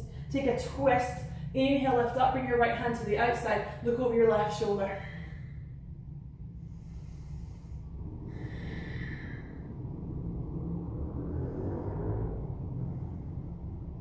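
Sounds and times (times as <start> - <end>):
steady low hum: 0.0 - 14.0
woman breathing deeply: 4.9 - 10.4.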